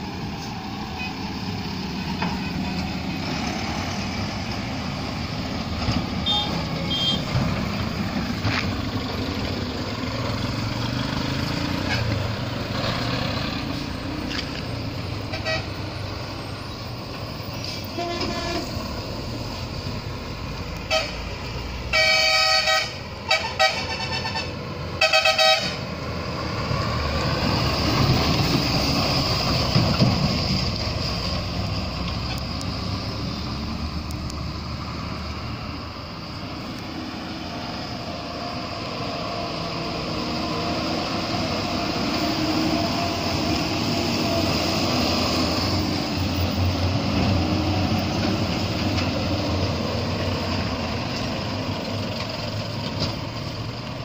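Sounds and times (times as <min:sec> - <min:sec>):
diesel truck engines passing: 0:00.0 - 0:54.0
vehicle horn blasts: 0:06.2 - 0:07.3, 0:15.3 - 0:15.7, 0:17.9 - 0:18.7, 0:20.9 - 0:21.2, 0:21.9 - 0:25.8.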